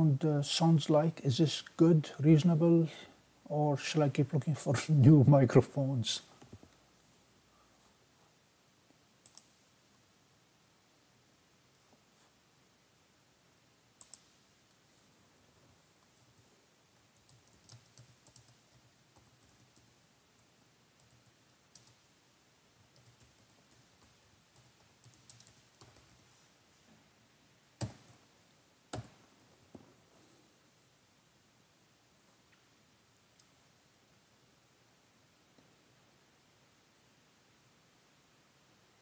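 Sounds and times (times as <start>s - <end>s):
faint scattered clicks: 9.2s - 9.6s, 14.0s - 14.8s, 21.0s - 22.0s, 33.3s - 33.6s.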